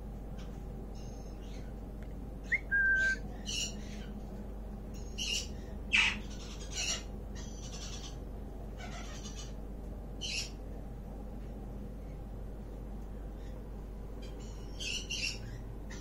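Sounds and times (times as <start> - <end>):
parrot chirping and whistling: 2.4 - 3.2
parrot squawking: 2.5 - 3.7, 5.2 - 8.2, 8.8 - 9.6.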